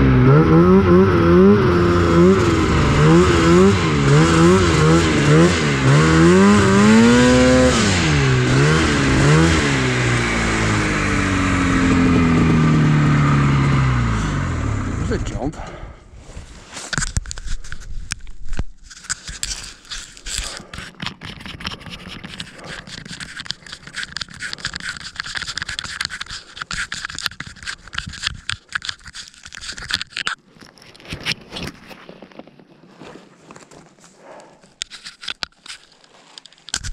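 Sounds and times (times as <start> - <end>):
microphone rubbing on fabric: 16.1 - 28.4.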